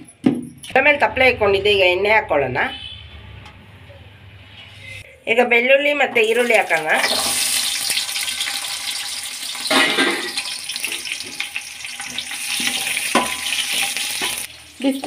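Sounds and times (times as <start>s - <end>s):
onion and garlic sizzling in oil: 6.2s - 15.0s.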